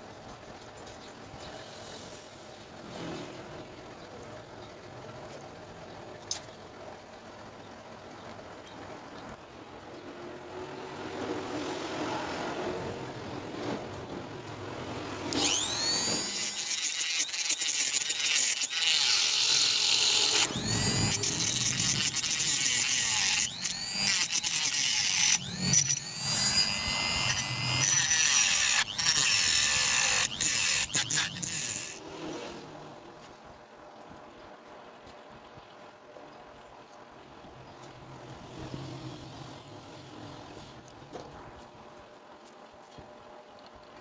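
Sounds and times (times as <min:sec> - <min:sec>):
power tool grinding screech: 0:15.3 - 0:32.6.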